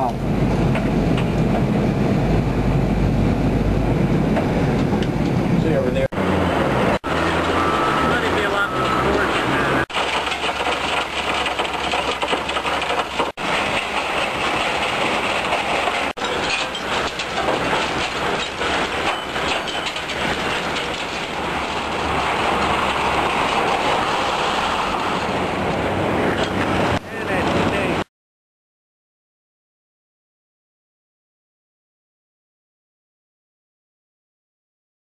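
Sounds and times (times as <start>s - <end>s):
metal shredding machinery clatter: 6.1s - 28.0s.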